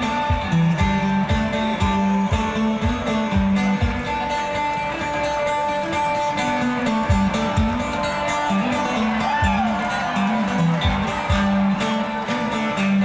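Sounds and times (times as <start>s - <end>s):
banjo picked and strummed: 0.0s - 13.0s.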